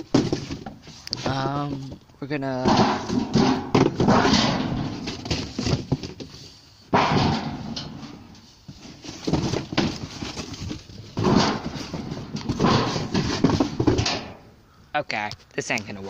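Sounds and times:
cardboard boxes being handled: 0.0 - 7.3, 8.3 - 14.2
metal tub clattering: 2.4 - 5.9, 6.9 - 8.3, 11.1 - 14.4
loud thumps: 2.6 - 6.2, 6.9 - 8.2, 11.1 - 14.5.

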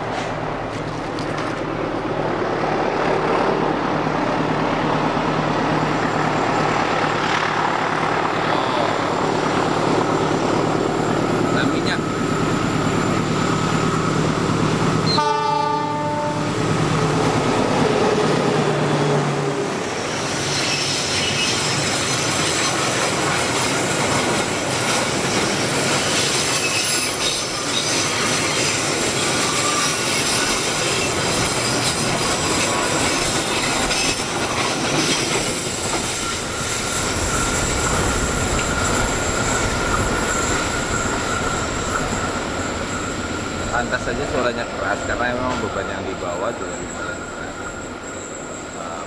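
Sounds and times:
train wheels rumbling and clattering: 0.0 - 15.2, 16.2 - 49.0
locomotive engine: 0.0 - 49.0
wheel squeal: 20.1 - 23.0, 25.2 - 49.0.

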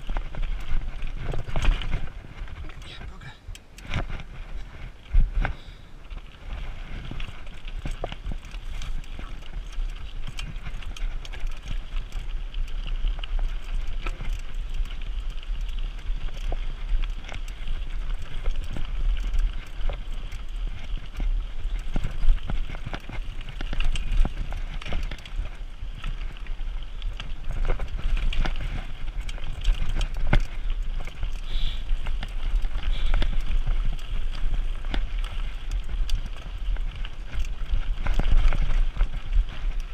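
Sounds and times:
bike rattling and knocking: 0.0 - 39.9
bike tyres crunching over stones: 0.0 - 39.9
wind rumble on microphone: 0.0 - 39.9.

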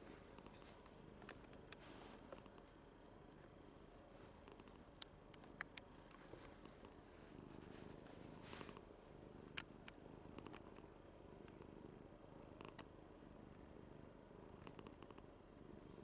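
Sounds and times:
cat purring: 0.0 - 16.0
faint clicks: 4.4 - 6.7, 9.4 - 11.7, 12.5 - 12.9.

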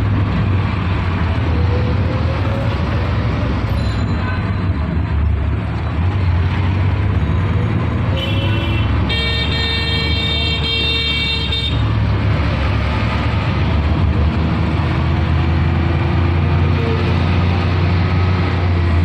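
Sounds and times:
car driving in traffic: 0.0 - 19.0
vehicle horn: 8.2 - 11.8.

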